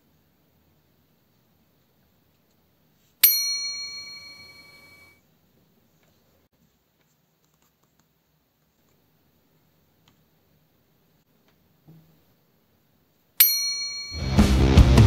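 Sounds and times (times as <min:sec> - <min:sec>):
bell ding: 0:03.2 - 0:05.2, 0:13.4 - 0:14.5.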